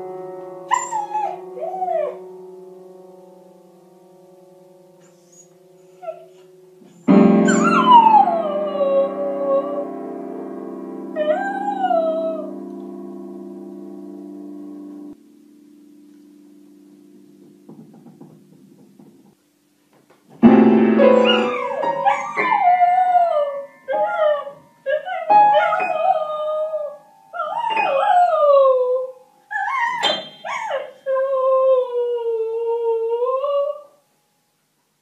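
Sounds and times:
piano notes struck by dog: 0.0s - 2.4s, 5.0s - 15.2s, 16.0s - 19.4s, 20.3s - 28.2s
dog howling: 7.5s - 9.9s, 11.2s - 12.5s, 21.2s - 33.8s.

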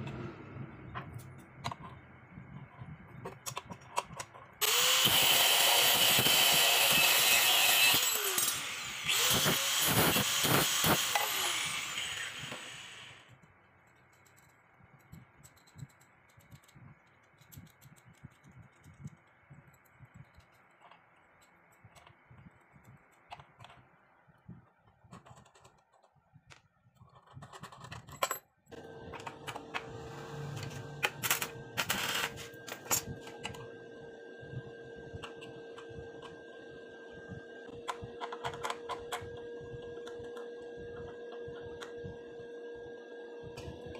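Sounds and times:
angle grinder cutting steel rod: 4.6s - 13.2s, 29.3s - 33.6s
nuts and bolts clicking: 13.8s - 22.2s
steady hum: 28.8s - 43.9s
metal parts clinking: 31.0s - 33.5s.

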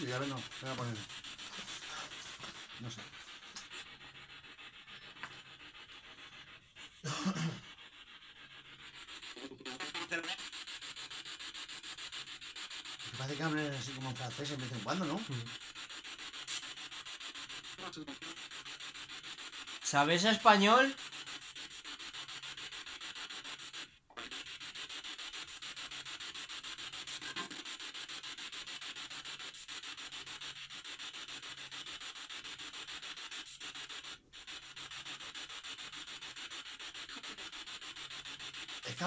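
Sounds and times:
pulsing static hiss: 0.0s - 3.7s, 9.1s - 12.0s, 12.6s - 16.9s, 37.2s - 39.0s.

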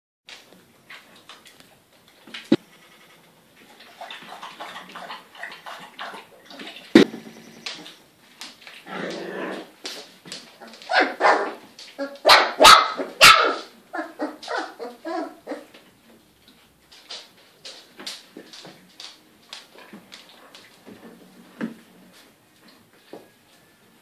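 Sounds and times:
puppies yipping and barking: 10.6s - 15.7s.

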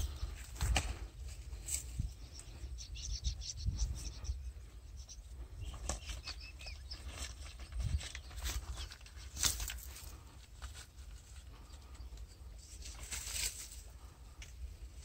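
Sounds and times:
wind rumbling on microphone: 0.0s - 9.1s
bird chirps: 2.0s - 9.4s.

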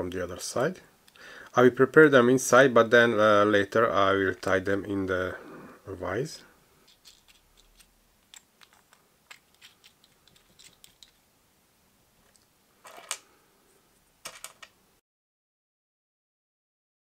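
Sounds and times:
metal hardware clicking and clinking: 6.8s - 11.2s.

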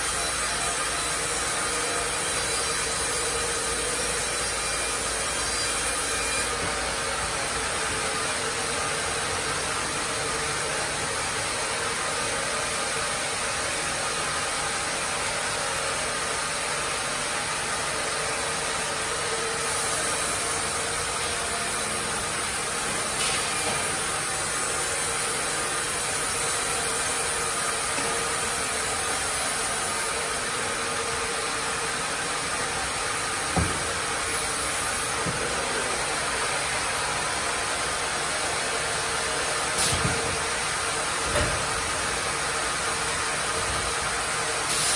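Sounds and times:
sawmill saw blades whirring: 17.0s - 44.9s.

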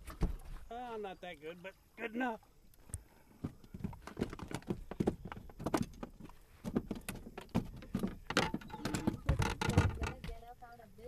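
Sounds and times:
knocks and thumps on boat deck: 0.0s - 0.6s, 3.4s - 10.5s.

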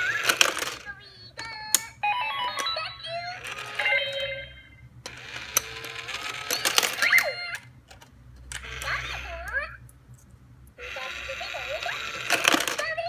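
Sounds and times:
electronic voice: 0.0s - 4.7s, 8.6s - 9.8s, 10.8s - 13.0s
coins clinking: 5.1s - 7.3s, 10.9s - 13.0s.

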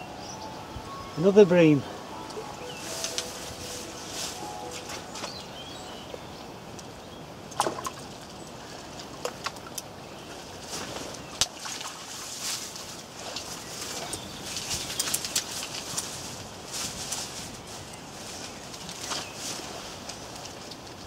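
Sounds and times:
fish splashing: 7.5s - 9.8s
water sloshing: 7.5s - 13.5s.

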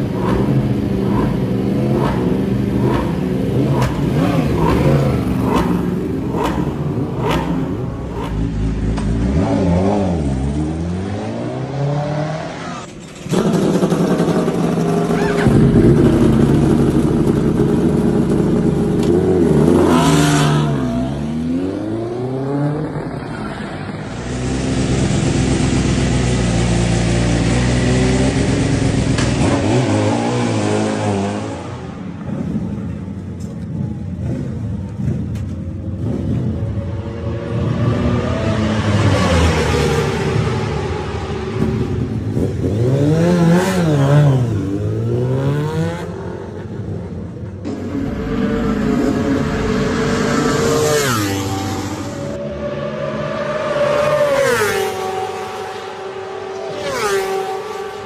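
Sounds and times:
racing motorcycle engines revving: 0.0s - 58.0s.

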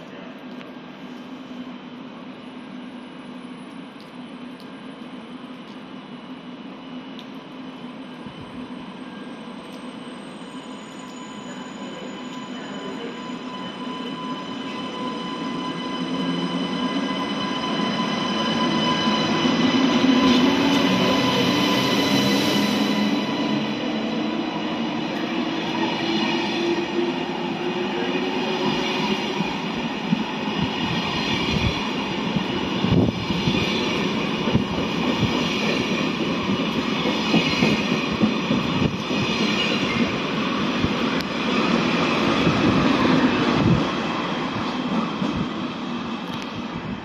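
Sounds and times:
high-speed train passing: 0.0s - 47.0s
rising train whine: 0.0s - 47.0s.

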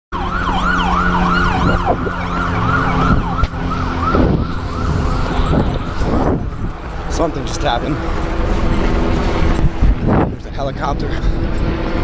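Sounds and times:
police siren yelping: 0.1s - 9.6s.

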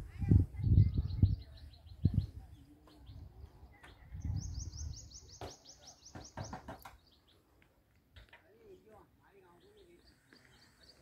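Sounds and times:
small bird chirping: 0.7s - 7.5s.

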